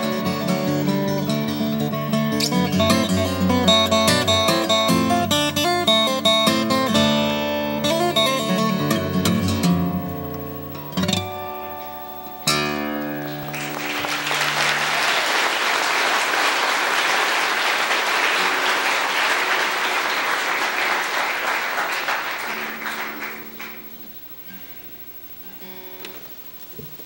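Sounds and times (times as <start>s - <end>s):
fingerpicked acoustic guitar: 0.0s - 14.9s, 18.4s - 20.0s, 22.2s - 26.9s
audience applause: 13.3s - 24.0s.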